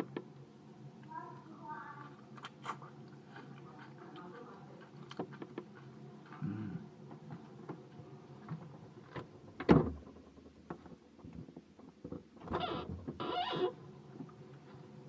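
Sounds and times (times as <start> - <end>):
faint clicks and knocks: 8.4 - 13.2
refrigerator door thudding shut: 9.6 - 10.0.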